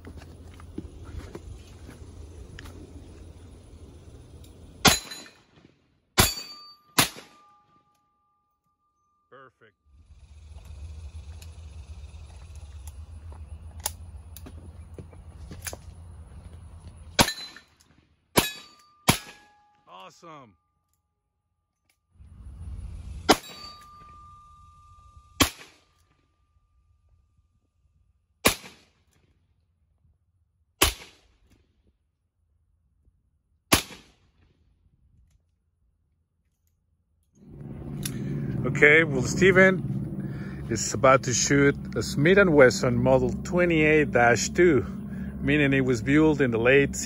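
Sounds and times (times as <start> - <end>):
low steady rumble: 0.0 - 5.6, 9.4 - 17.8, 22.2 - 28.3, 37.3 - 47.0
revolver metallic clicks: 13.7 - 14.6, 37.5 - 38.4.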